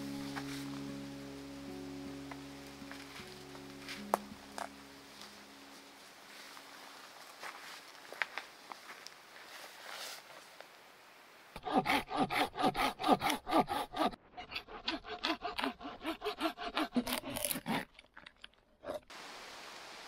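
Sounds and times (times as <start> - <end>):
hand saw cutting wood: 11.6 - 17.9.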